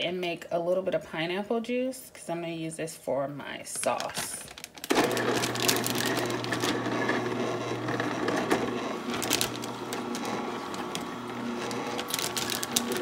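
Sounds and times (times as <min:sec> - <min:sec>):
juicer motor hum: 0:04.8 - 0:13.0
crunching clicks: 0:08.4 - 0:13.0.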